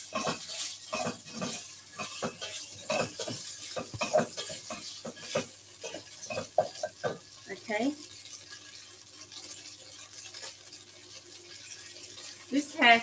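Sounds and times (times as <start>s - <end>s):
tofu sizzling in oil: 0.0s - 13.0s
utensil scraping and knocking pan: 0.1s - 7.3s.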